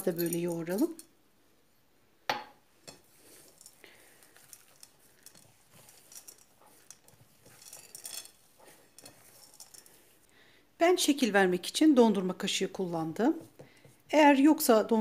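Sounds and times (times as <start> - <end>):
hands squishing cookie dough: 3.0 - 10.3.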